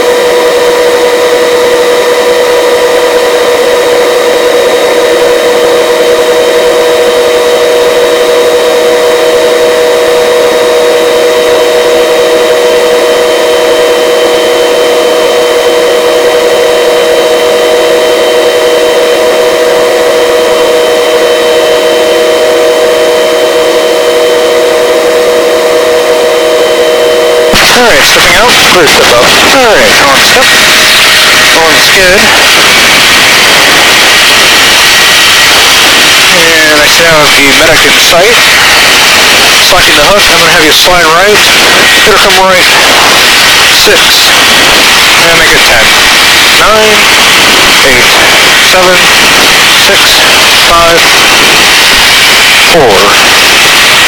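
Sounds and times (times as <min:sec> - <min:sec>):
helicopter turbine whine: 0:00.0 - 0:54.0
rushing rotor noise: 0:00.0 - 0:54.0.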